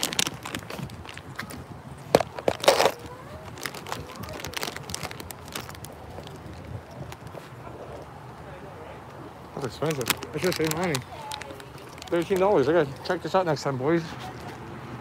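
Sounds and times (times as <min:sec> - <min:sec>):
phone handling clicks and rustles: 0:09.8 - 0:12.6.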